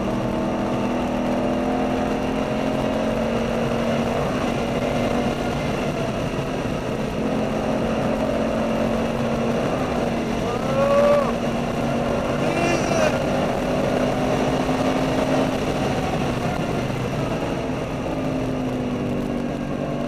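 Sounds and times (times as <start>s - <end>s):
road and wind noise: 0.0s - 20.0s
sports car engine running: 0.0s - 20.0s.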